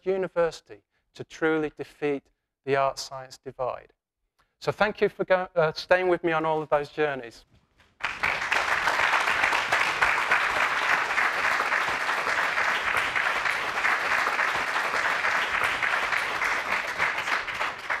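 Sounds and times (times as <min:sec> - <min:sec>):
audience applauding: 0:08.0 - 0:18.0.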